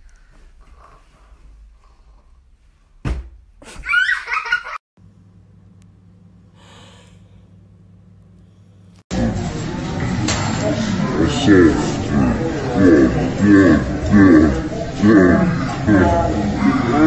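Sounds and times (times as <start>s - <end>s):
knock: 3.0s - 3.4s
high-pitched laughter: 3.7s - 4.8s
low electrical hum: 5.0s - 17.0s.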